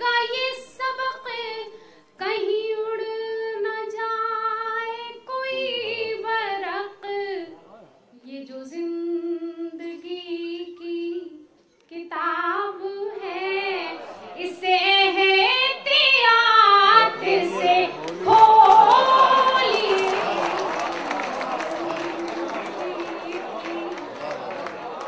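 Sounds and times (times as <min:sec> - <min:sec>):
woman singing unaccompanied: 0:00.0 - 0:07.5, 0:08.2 - 0:20.3
audience noise: 0:13.0 - 0:25.0.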